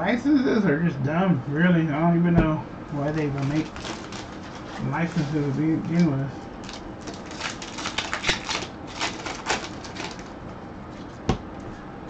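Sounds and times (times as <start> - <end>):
cards and wrapper crinkling: 3.0 - 6.0, 6.6 - 10.4.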